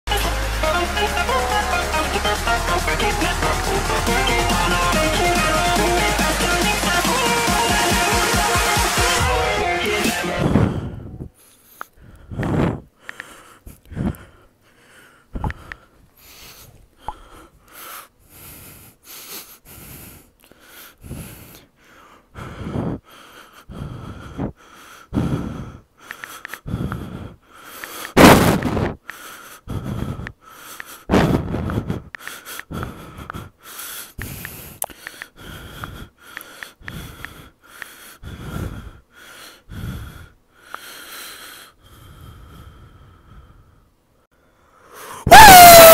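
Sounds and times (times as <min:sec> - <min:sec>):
person wheezing breathing: 0:10.4 - 0:28.2, 0:28.8 - 0:45.4.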